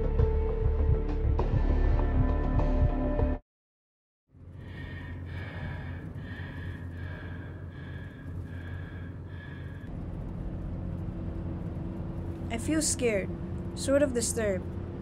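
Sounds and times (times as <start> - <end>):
car driving rumble: 4.4 - 15.0.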